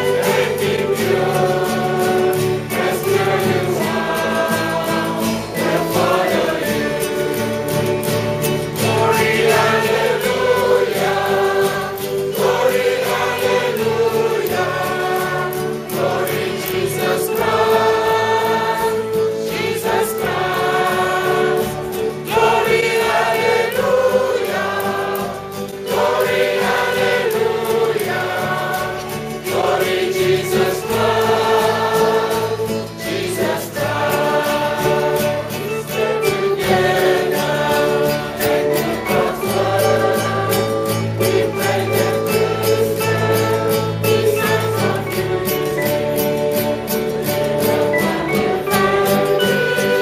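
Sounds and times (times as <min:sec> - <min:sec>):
mixed choir singing a hymn: 0:00.0 - 0:50.0.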